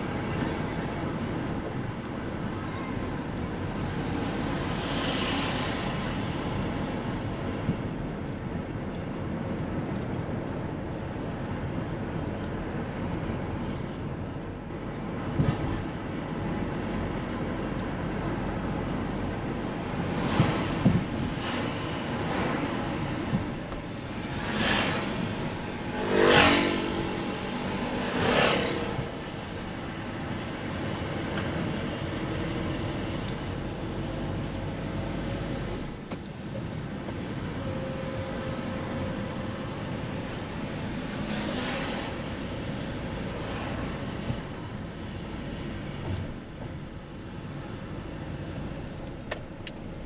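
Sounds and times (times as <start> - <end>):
cars passing by: 0.0 - 50.0
road noise rumble: 0.0 - 50.0.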